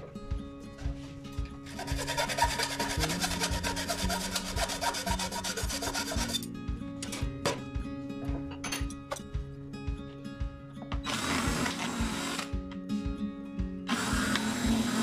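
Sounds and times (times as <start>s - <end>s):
hacksaw cutting through rod: 1.7s - 6.5s, 11.1s - 12.5s, 13.9s - 15.0s.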